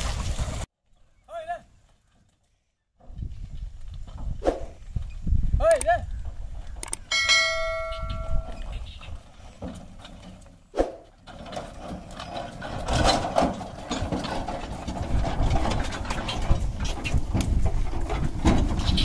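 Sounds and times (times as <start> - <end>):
hooves plodding on dirt: 0.0 - 19.0
cart wheels rumbling: 6.1 - 19.0
wooden cart rattling: 7.3 - 19.0.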